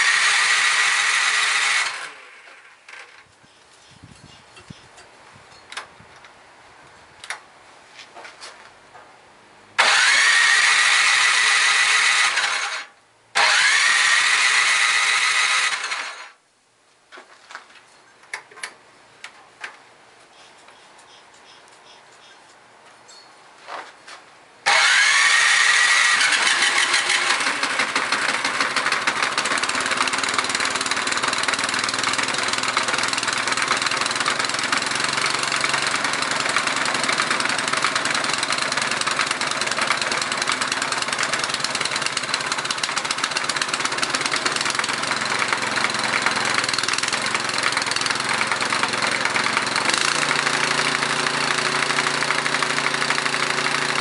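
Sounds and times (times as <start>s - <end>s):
snowblower engine starting and running: 0.0s - 3.3s, 9.8s - 16.4s, 24.6s - 54.0s.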